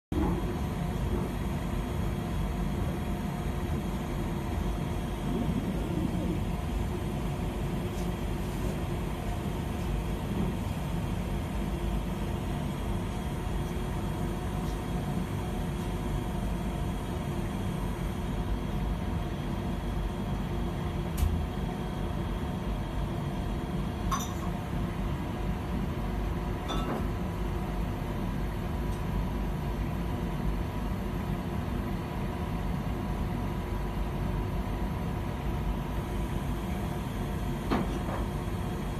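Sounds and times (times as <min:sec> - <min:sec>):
machine hum: 0:00.2 - 0:24.3.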